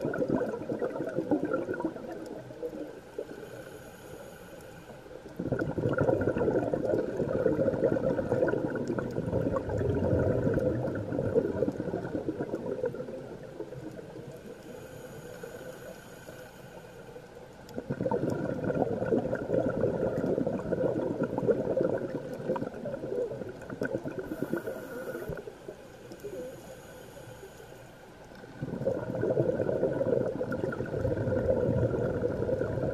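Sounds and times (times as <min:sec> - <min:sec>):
air bubbling underwater: 0:00.0 - 0:02.2, 0:05.4 - 0:13.6, 0:17.8 - 0:25.4, 0:28.6 - 0:32.9.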